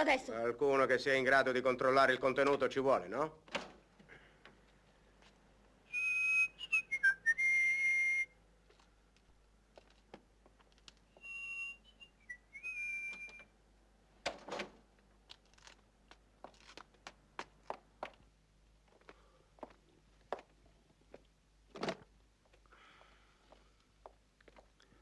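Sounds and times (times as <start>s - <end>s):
person whistling: 5.9s - 8.4s, 11.1s - 13.5s.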